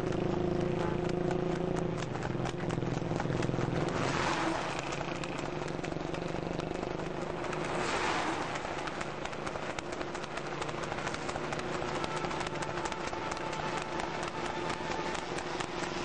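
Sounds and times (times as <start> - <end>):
cart clattering: 0.0 - 16.0
horse hooves on paved road: 0.0 - 16.0
motor vehicle engines running: 0.0 - 16.0
rush of noise: 6.8 - 9.4.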